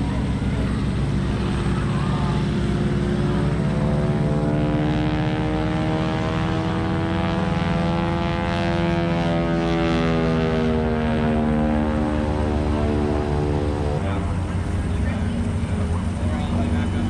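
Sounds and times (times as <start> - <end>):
propeller airplane engine droning: 0.0 - 17.0.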